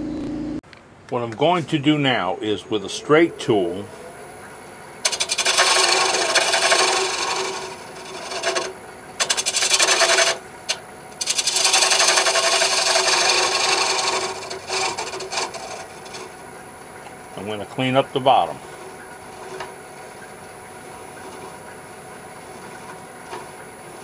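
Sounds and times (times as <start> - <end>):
lathe tool scraping wood: 5.0 - 16.7, 17.3 - 24.0.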